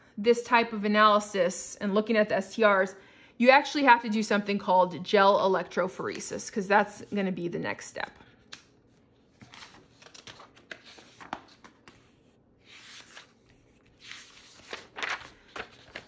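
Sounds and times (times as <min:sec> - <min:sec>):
paper rustling and sliding: 0:08.9 - 0:16.0.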